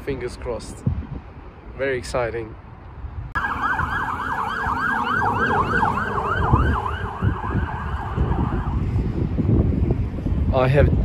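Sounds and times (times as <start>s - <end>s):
low traffic rumble: 0.0s - 11.0s
wind rumble: 0.0s - 11.0s
fire engine siren yelping: 3.4s - 8.9s.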